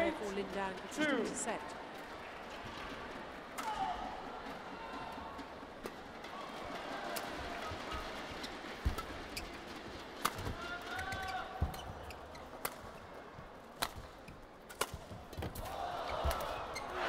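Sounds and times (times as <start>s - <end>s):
racket striking shuttlecock: 10.2s - 13.0s, 13.8s - 16.5s
shoe squeaks: 10.5s - 12.6s.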